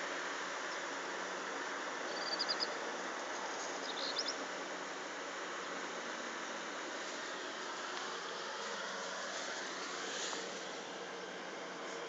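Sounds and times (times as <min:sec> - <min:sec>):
steady background hiss: 0:00.0 - 0:12.0
small bird chirping: 0:02.1 - 0:02.8, 0:03.8 - 0:04.4.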